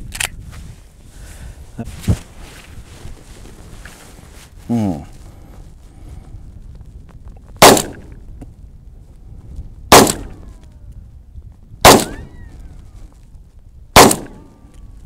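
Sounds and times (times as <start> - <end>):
pistol shots: 7.6 - 8.1, 9.9 - 10.4, 11.8 - 12.3, 14.0 - 14.5.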